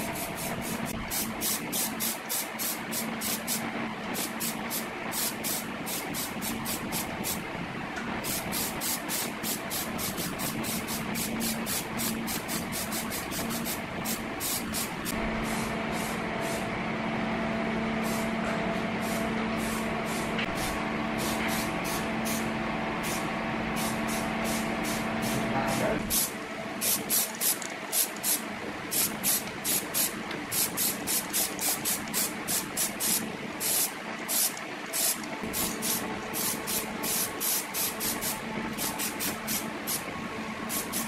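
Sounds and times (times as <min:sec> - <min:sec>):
hissing paint spray bursts: 0:00.0 - 0:03.6, 0:04.2 - 0:07.4, 0:08.2 - 0:16.6, 0:26.1 - 0:40.1, 0:40.7 - 0:41.0
mechanical hum: 0:00.0 - 0:41.0.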